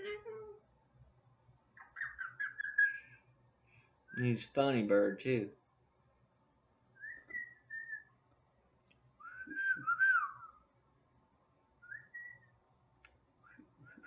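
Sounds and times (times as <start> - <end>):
cockatoo whistling: 7.0 - 8.1, 9.2 - 10.6, 11.8 - 12.5, 13.4 - 14.0.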